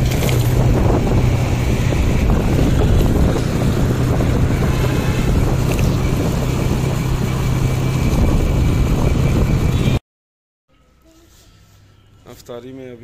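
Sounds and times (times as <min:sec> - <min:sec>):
motorcycle engine running: 0:00.0 - 0:10.0
wind rushing over microphone: 0:00.0 - 0:10.0.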